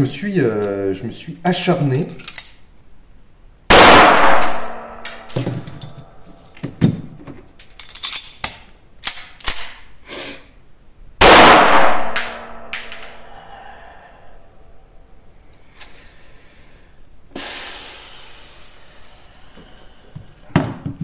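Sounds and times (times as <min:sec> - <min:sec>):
metallic gun handling clicks: 0:02.2 - 0:02.6, 0:07.6 - 0:09.9, 0:12.7 - 0:13.2
pistol shots: 0:03.7 - 0:05.3, 0:11.2 - 0:13.0.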